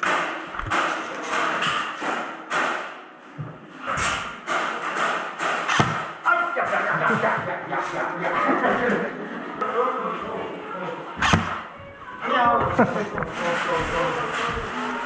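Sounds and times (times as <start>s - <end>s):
pellets hitting walls: 0.0s - 3.1s, 3.8s - 8.0s, 11.2s - 11.7s, 12.6s - 15.0s
airsoft guns firing: 5.4s - 6.2s.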